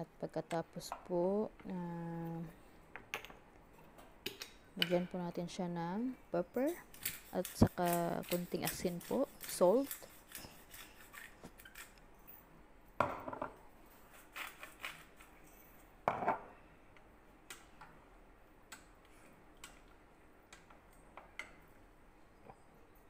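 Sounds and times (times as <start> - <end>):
utensils scraping cooking pot: 6.6 - 12.0.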